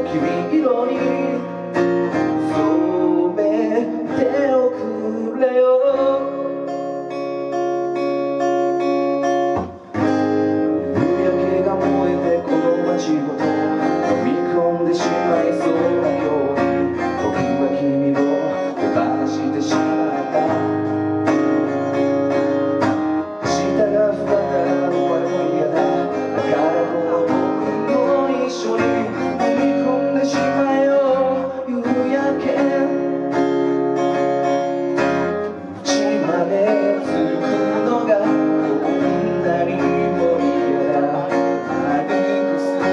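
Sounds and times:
acoustic guitar strumming: 0:00.0 - 0:42.9.

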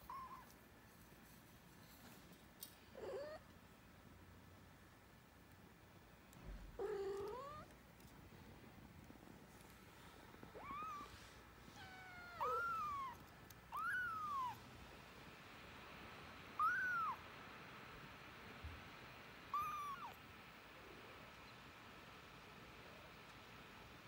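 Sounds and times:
kitten mewing: 0:11.8 - 0:14.6, 0:16.6 - 0:17.2, 0:19.5 - 0:20.2.

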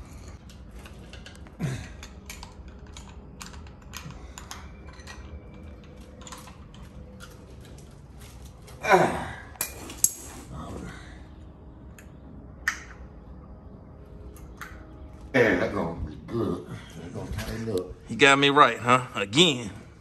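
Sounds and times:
metal tools clicking and clinking: 0:00.3 - 0:08.8, 0:09.6 - 0:10.5.

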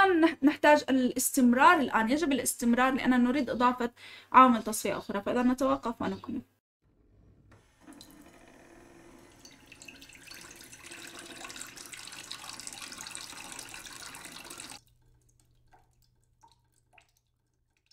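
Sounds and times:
water pouring into a glass: 0:09.2 - 0:17.9
faint water drips: 0:09.4 - 0:17.9.

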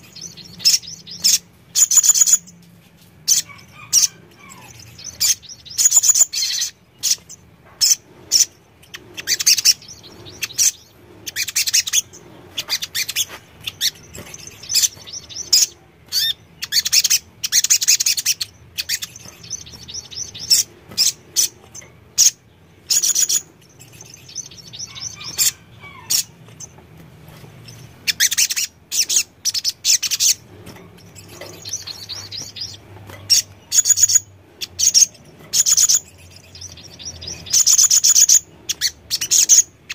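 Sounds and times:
sunbird twittering song: 0:00.0 - 0:26.8, 0:27.6 - 0:39.9.

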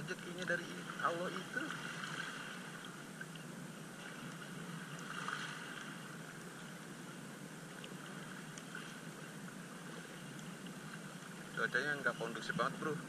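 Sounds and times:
sea water lapping and splashing: 0:00.0 - 0:13.0
faint ticks: 0:02.7 - 0:05.2, 0:05.8 - 0:12.6.

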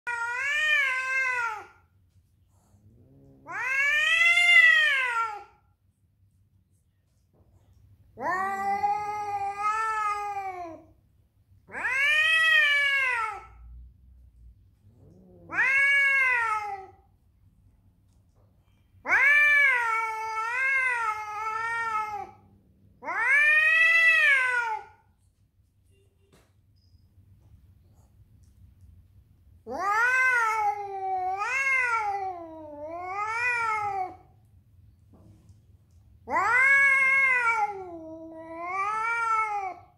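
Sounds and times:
cat yowling angrily: 0:00.0 - 0:01.8, 0:03.1 - 0:05.6, 0:08.2 - 0:10.8, 0:11.7 - 0:13.6, 0:15.0 - 0:17.0, 0:19.0 - 0:22.4, 0:23.0 - 0:25.0, 0:29.7 - 0:34.3, 0:36.2 - 0:39.9.

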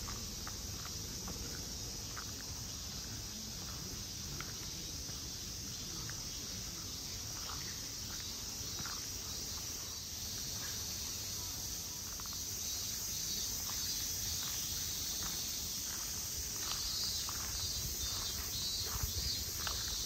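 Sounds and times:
faint footsteps: 0:00.0 - 0:20.0
high insect drone: 0:00.0 - 0:20.0.

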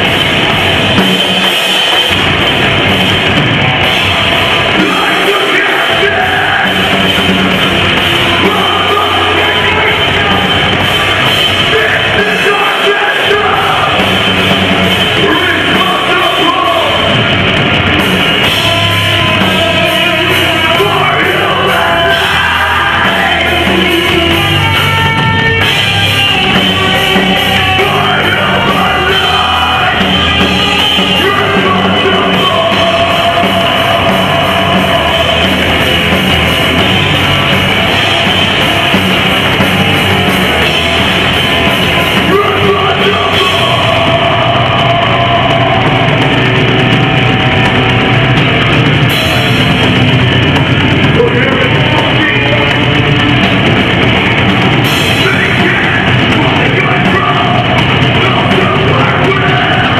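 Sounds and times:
heavy rock music: 0:00.0 - 0:59.9
person yelling and singing: 0:04.2 - 0:07.3, 0:08.1 - 0:14.2, 0:15.1 - 0:17.2, 0:18.6 - 0:25.1, 0:26.5 - 0:36.1, 0:42.1 - 0:46.1, 0:51.0 - 0:53.0, 0:55.1 - 0:59.9.

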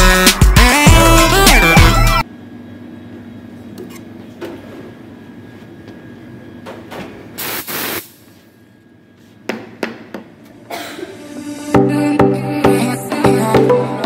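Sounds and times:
espresso machine hissing burst: 0:07.4 - 0:08.2.

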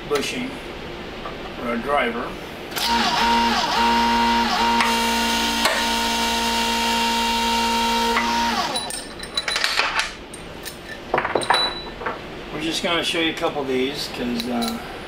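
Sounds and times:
press motor humming: 0:02.7 - 0:08.9.

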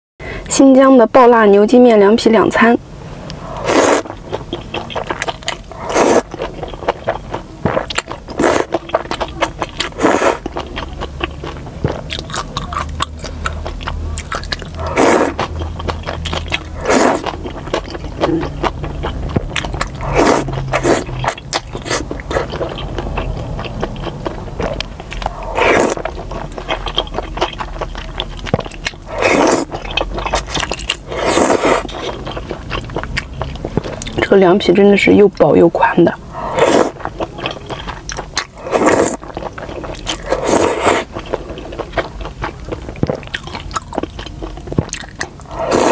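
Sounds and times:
wet chewing: 0:03.2 - 0:45.9
person slurping noodles: 0:03.4 - 0:09.1, 0:09.7 - 0:10.7, 0:14.3 - 0:18.7, 0:19.6 - 0:26.8, 0:29.0 - 0:29.8, 0:30.4 - 0:32.3, 0:36.3 - 0:37.1, 0:38.5 - 0:41.8, 0:45.4 - 0:45.9.

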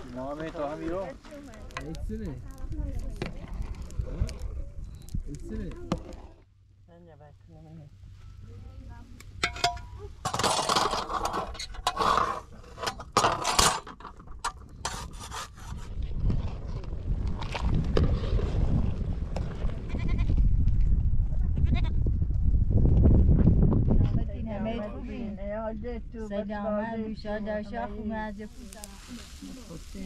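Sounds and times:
low rumble: 0:15.9 - 0:30.0
goats bleating: 0:19.9 - 0:20.3.

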